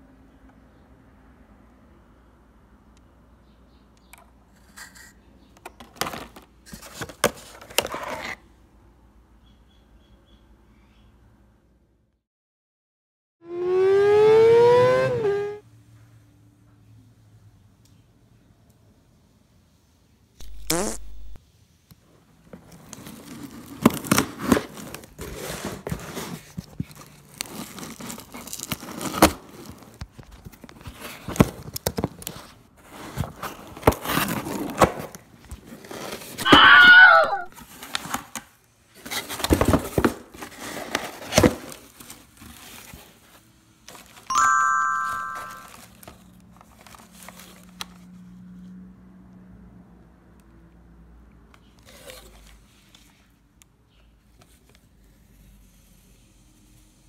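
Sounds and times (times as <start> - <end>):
loud squealing rip: 13.5 - 15.6
utility knife slitting tape: 20.4 - 21.2
cardboard ripping and crinkling: 22.6 - 36.7, 39.0 - 44.3
short ringing chime: 44.3 - 45.9.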